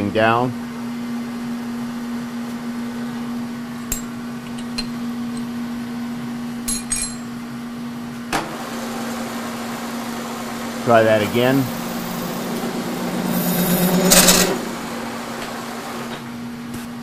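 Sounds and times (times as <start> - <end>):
small metallic clinks: 6.7 - 7.4
milling machine humming: 8.5 - 16.6.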